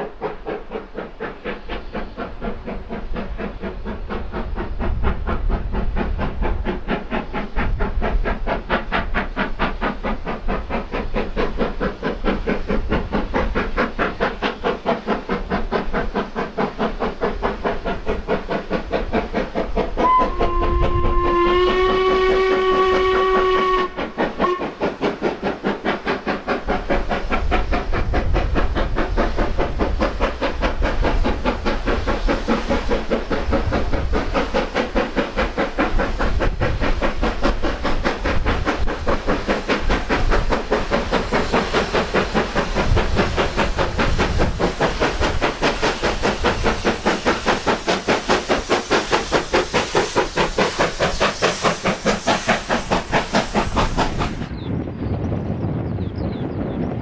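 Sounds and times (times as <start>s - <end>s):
steam engine exhaust chuffs: 0.0s - 54.5s
steam locomotive whistle: 20.0s - 24.8s.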